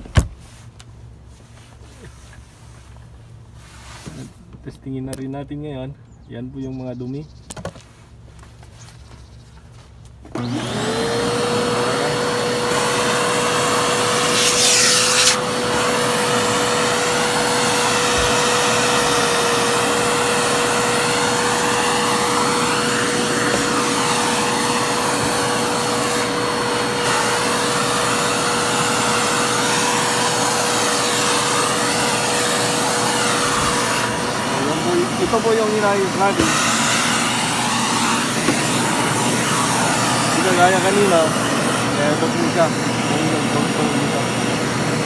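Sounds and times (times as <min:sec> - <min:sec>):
vacuum cleaner motor running: 0:10.3 - 0:45.0
vacuum sucking dirt off floor: 0:10.3 - 0:45.0.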